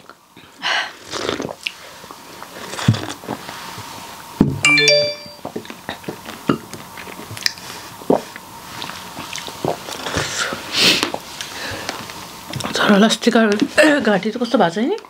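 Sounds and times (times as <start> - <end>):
rising ringing tones: 4.7 - 5.5
person chewing food: 7.0 - 10.3.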